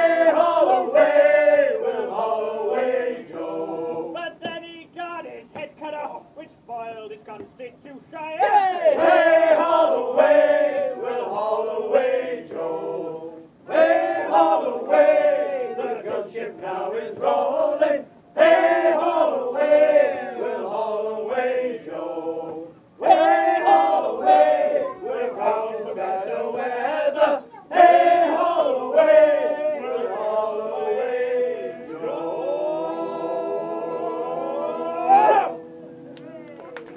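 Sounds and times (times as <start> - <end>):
men singing in chorus unaccompanied: 0.0 - 4.6, 8.4 - 36.1.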